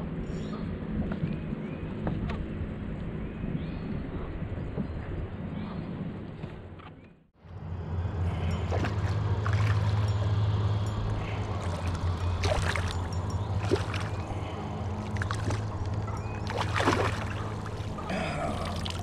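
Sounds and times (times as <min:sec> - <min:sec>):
low steady rumble: 0:07.4 - 0:19.0
water splashing and sloshing: 0:08.0 - 0:19.0.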